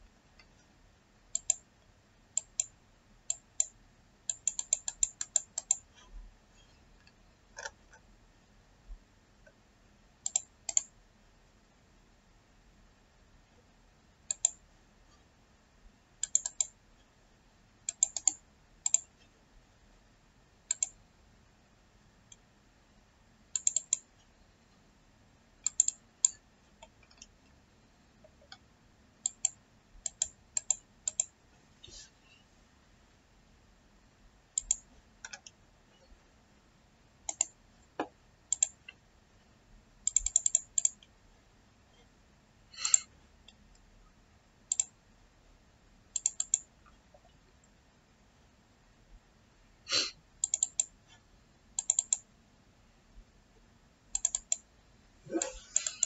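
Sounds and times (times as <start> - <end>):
mouse and keyboard clicks: 1.3 - 1.6, 4.3 - 6.0, 7.6 - 8.0, 10.2 - 10.9, 14.3 - 14.6, 16.2 - 16.8, 17.9 - 19.1, 20.7 - 21.0, 23.6 - 24.1, 25.6 - 27.4, 29.2 - 31.3, 34.6 - 35.6, 37.3 - 39.0, 40.1 - 41.0, 42.8 - 43.6, 46.2 - 46.7, 50.4 - 50.9, 51.8 - 52.2, 54.2 - 54.7, 55.3 - 56.0.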